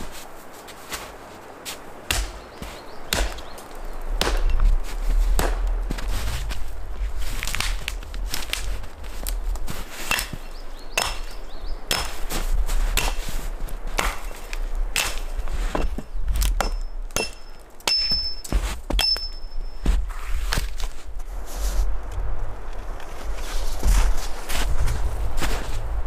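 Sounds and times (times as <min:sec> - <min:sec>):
axe chopping wood: 0:02.1 - 0:03.5, 0:04.2 - 0:04.6, 0:05.4 - 0:05.7, 0:10.1 - 0:12.4, 0:13.0 - 0:13.3, 0:13.9 - 0:19.3.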